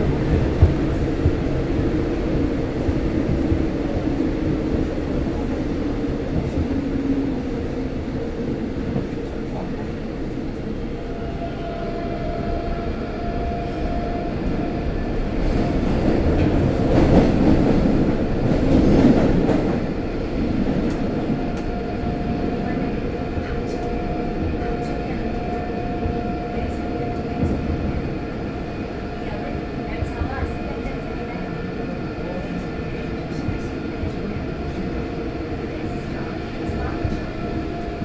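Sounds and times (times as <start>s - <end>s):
subway train rumble: 0.0s - 38.0s.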